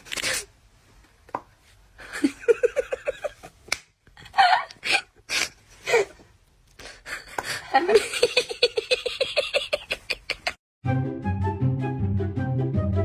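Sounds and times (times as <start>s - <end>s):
person giggling: 2.0s - 3.6s, 4.2s - 6.2s, 6.8s - 10.6s
light music: 10.8s - 13.0s.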